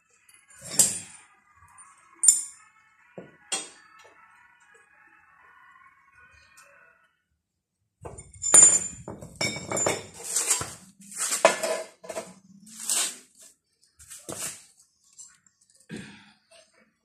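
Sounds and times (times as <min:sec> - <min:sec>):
metal bar scraping: 0:09.8 - 0:13.3.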